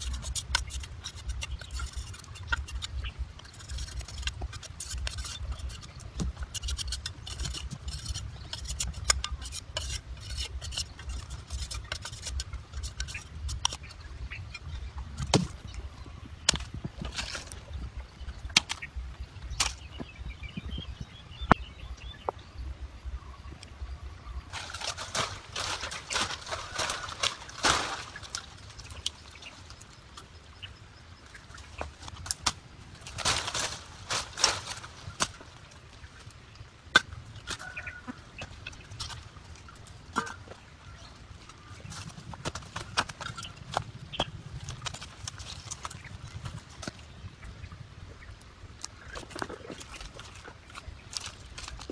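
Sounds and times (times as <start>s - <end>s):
dry bamboo strips rustling: 0.0s - 20.1s, 24.4s - 47.3s, 48.7s - 51.9s
machete splitting bamboo: 24.5s - 28.5s, 32.2s - 35.4s.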